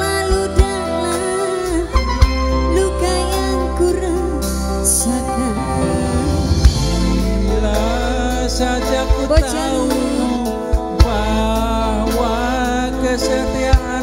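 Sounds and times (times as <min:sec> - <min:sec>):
woman singing: 0:00.0 - 0:12.6
guitar: 0:00.0 - 0:14.0
keyboard: 0:00.0 - 0:14.0
sharp drum strikes: 0:05.6 - 0:09.6.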